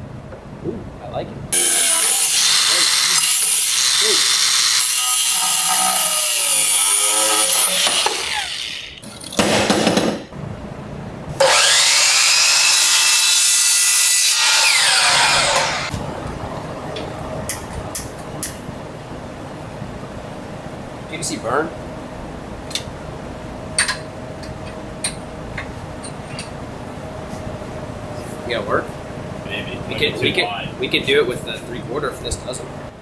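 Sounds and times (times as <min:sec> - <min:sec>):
angle grinder grinding: 0:01.6 - 0:09.0, 0:11.4 - 0:15.9
miter saw cutting pipe: 0:01.6 - 0:09.0, 0:11.4 - 0:15.9.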